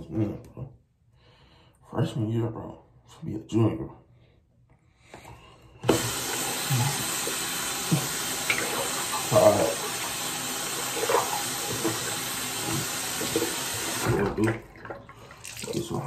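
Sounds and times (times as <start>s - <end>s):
water running into basin: 5.8s - 16.0s.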